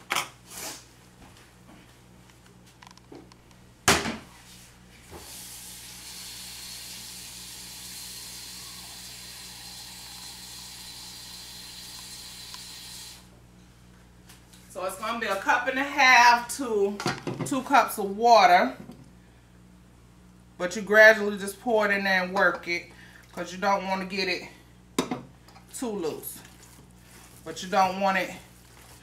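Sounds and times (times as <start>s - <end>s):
kitchen tap running: 5.2s - 13.2s.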